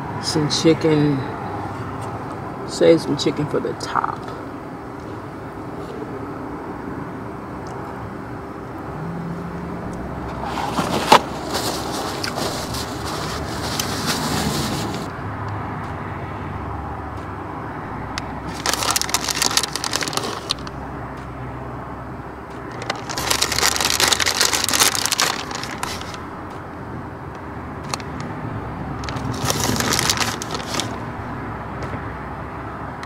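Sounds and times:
plastic bag crinkling: 10.4s - 15.1s, 18.4s - 20.8s, 22.7s - 26.3s, 29.0s - 31.0s.

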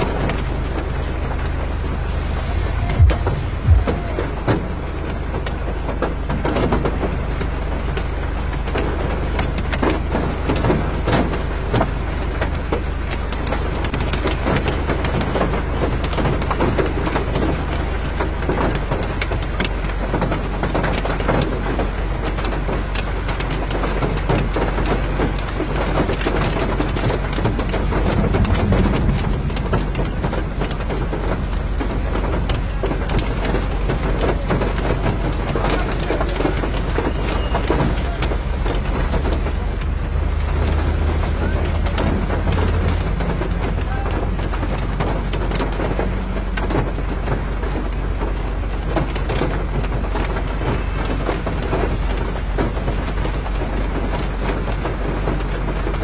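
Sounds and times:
low rumble: 0.0s - 6.0s, 25.4s - 37.1s
rain pattering on ground: 0.0s - 56.0s.

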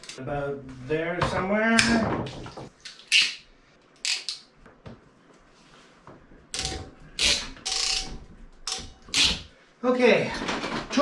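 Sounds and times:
tool clicks and rasps: 6.6s - 9.4s.

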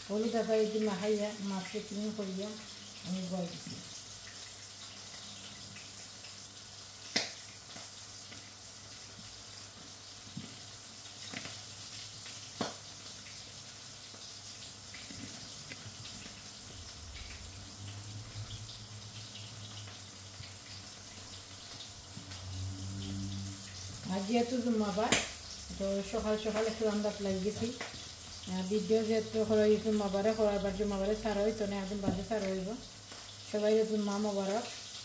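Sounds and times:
grated radish squelching and dripping: 0.0s - 35.0s.

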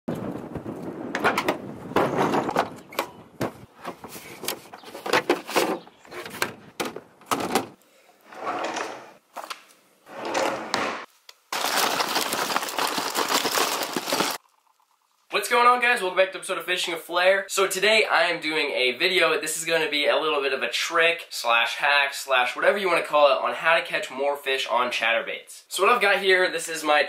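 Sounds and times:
hand rummaging through boxes: 11.5s - 14.4s.

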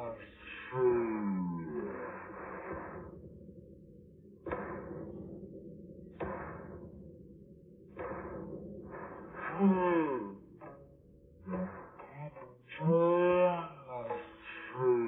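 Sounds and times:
heavy cartoon footsteps: 6.0s - 7.0s, 7.9s - 10.9s.

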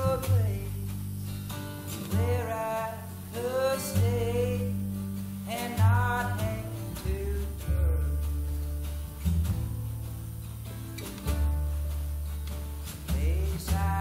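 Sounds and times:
person singing: 0.0s - 0.9s, 2.1s - 4.9s, 5.5s - 8.5s, 13.1s - 14.0s
acoustic guitar: 0.0s - 14.0s
upright bass: 0.0s - 14.0s.

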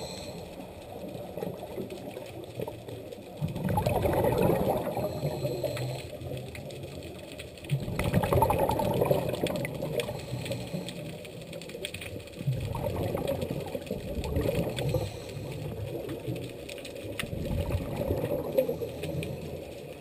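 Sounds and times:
underwater exhalation bubbling: 3.4s - 6.2s, 7.7s - 11.2s, 12.4s - 16.5s, 17.2s - 19.7s.

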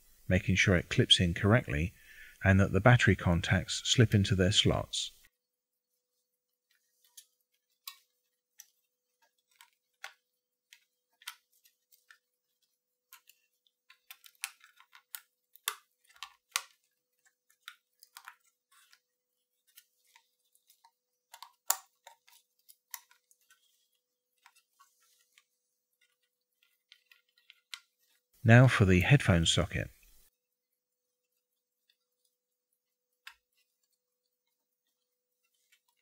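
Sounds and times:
small plastic clicks and taps: 13.1s - 19.0s.

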